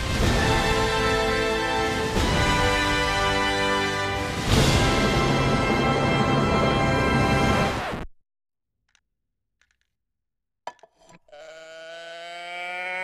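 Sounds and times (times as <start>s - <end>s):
music: 0.0s - 8.0s
toy moo can mooing: 11.2s - 13.0s.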